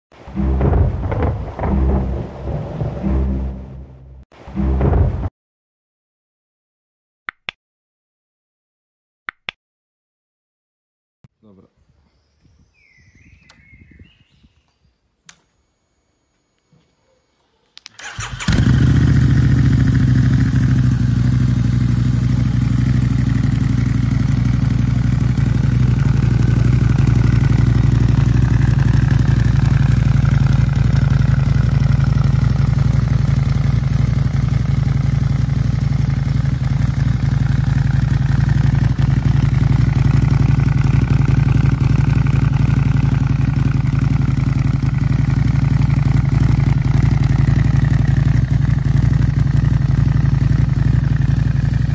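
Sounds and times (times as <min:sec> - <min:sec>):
motorcycle engine idling: 0:00.4 - 0:02.0, 0:18.0 - 0:51.9.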